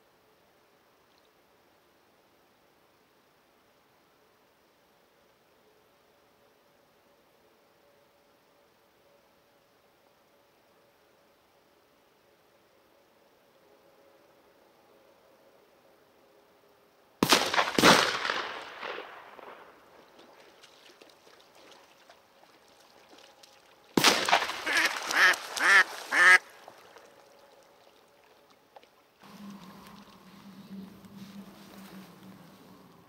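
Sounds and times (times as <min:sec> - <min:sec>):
sharp loud bangs: 0:17.2 - 0:19.6, 0:24.0 - 0:24.7
duck decoy quacking: 0:24.6 - 0:26.5.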